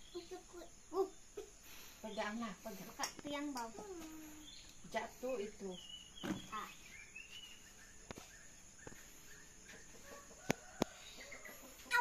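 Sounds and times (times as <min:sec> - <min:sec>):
chickens clucking faintly: 0:06.2 - 0:12.0.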